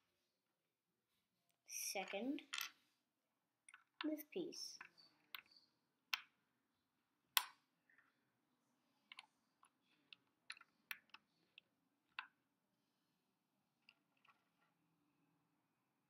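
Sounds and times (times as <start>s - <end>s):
plastic bricks clicking: 3.6s - 4.2s, 9.0s - 12.4s.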